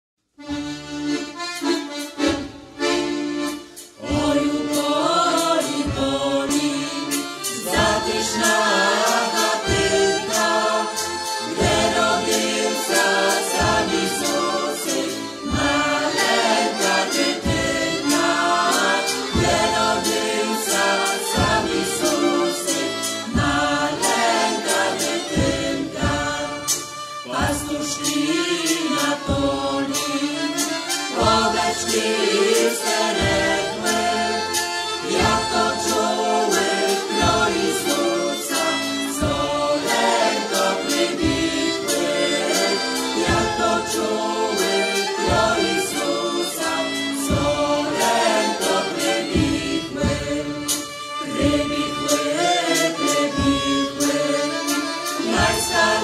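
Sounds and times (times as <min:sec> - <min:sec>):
violin: 0:00.3 - 0:56.0
group singing folk song: 0:00.5 - 0:56.0
deep beat: 0:02.1 - 0:30.5, 0:31.1 - 0:56.0.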